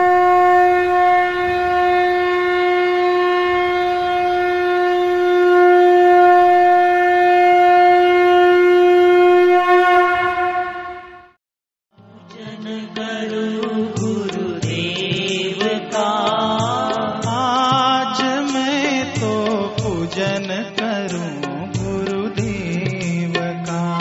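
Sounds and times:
conch shell blown: 0.0s - 11.4s.

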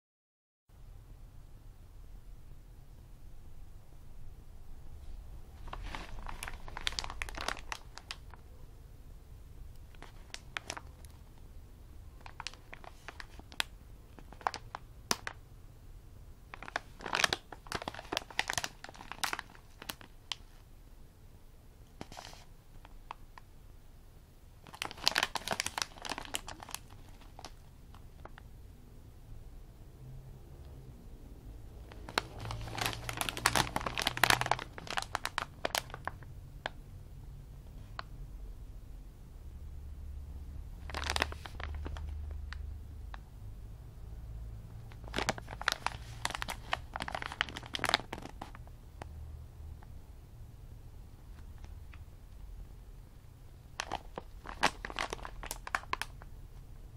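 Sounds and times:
plastic snack bag crinkling: 5.6s - 8.5s, 9.8s - 11.4s, 12.2s - 15.4s, 16.5s - 20.6s, 22.0s - 23.2s, 24.6s - 28.4s, 31.8s - 36.8s, 40.8s - 42.7s, 44.9s - 48.7s, 53.7s - 56.3s.

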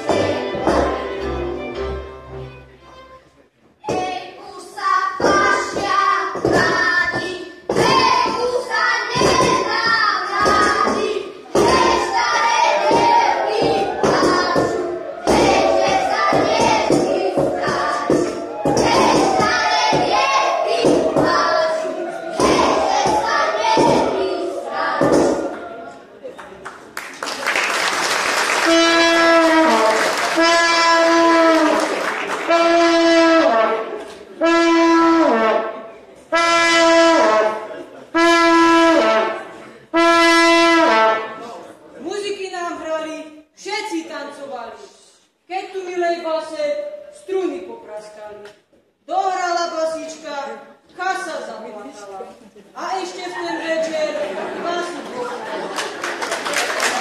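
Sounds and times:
children singing folk music: 0.0s - 26.0s, 28.6s - 41.7s
thuds on stage: 22.4s - 24.2s
brass horn long notes: 28.5s - 41.5s.

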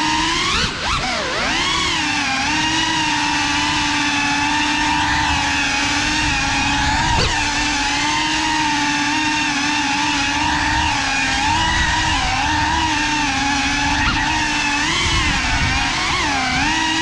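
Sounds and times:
drone motors and propellers whining: 0.0s - 17.0s.

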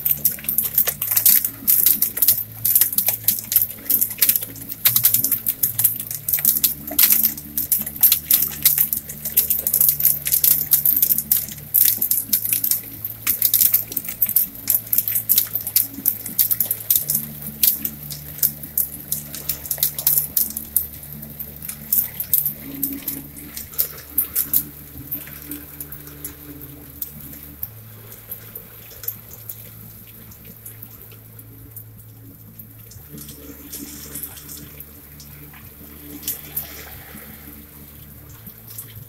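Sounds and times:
hail ticking on window: 0.0s - 31.2s
low steady hum: 0.0s - 39.0s
steady rain: 0.0s - 39.0s.

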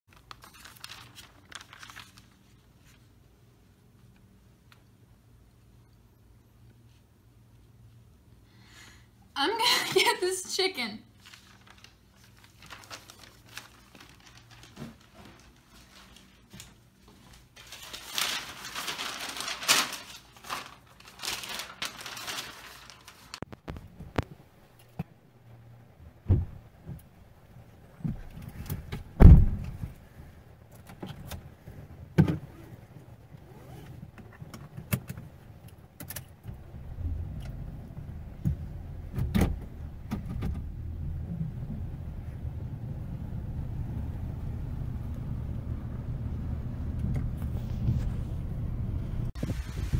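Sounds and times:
car door thumps: 26.3s - 26.6s, 29.2s - 29.8s
car engine rumbling: 34.2s - 49.9s.

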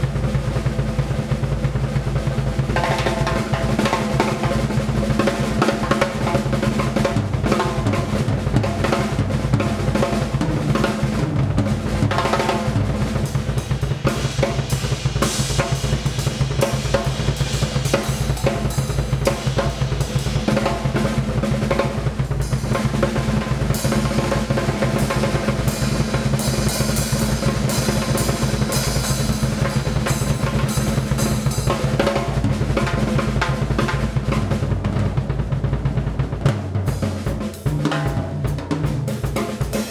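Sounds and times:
drum rolls and fills: 0.0s - 39.9s.

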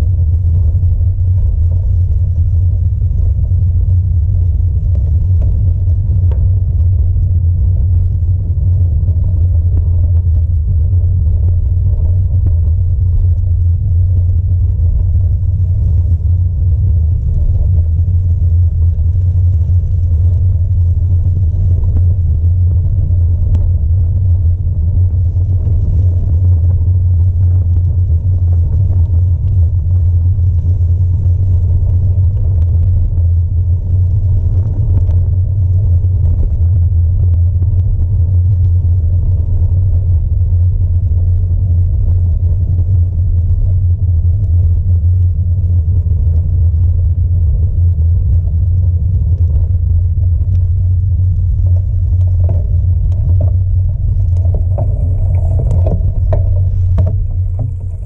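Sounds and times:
bicycle rolling over gravel: 51.6s - 58.0s
light rattles: 52.2s - 58.0s.

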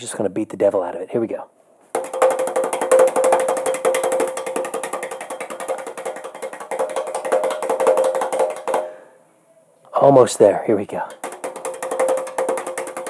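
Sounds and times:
paint brush slapping wood: 1.9s - 9.0s, 11.0s - 13.0s.

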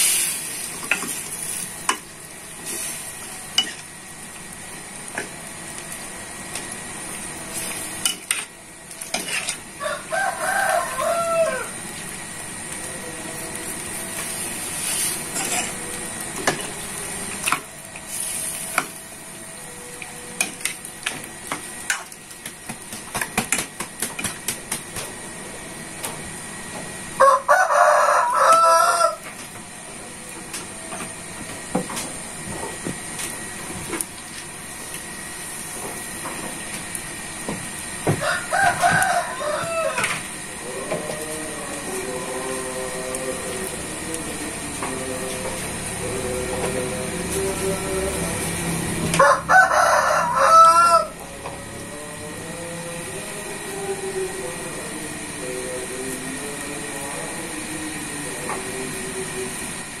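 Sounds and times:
steady hiss: 0.0s - 1.9s
food sizzling in a wok: 0.0s - 24.8s, 34.4s - 40.6s
rooster crowing: 9.7s - 12.0s, 27.2s - 29.3s, 38.0s - 43.8s, 47.6s - 53.4s.

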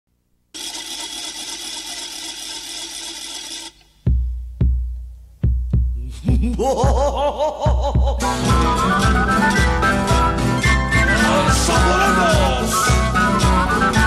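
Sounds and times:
wooden ratchet rattling: 0.6s - 3.9s
heavy bass drum strikes: 4.0s - 8.6s
brass band playing: 8.2s - 14.0s.

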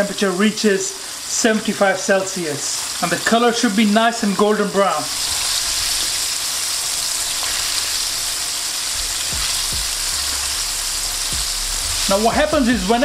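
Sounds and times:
chicken deep-frying in oil: 0.0s - 13.0s
soft low knocks: 9.0s - 12.1s.

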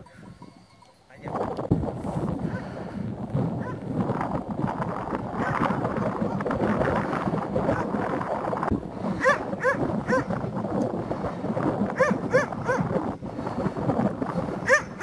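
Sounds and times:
dogs barking: 3.6s - 3.8s, 9.2s - 10.4s, 12.0s - 13.0s, 14.6s - 15.0s.

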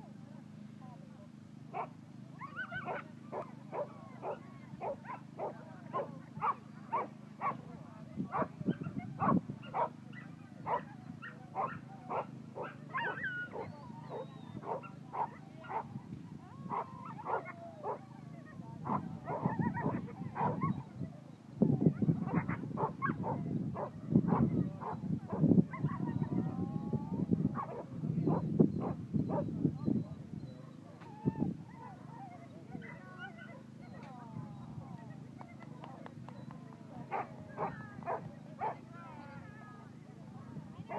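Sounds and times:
dog barking: 8.3s - 15.9s, 18.9s - 20.8s.

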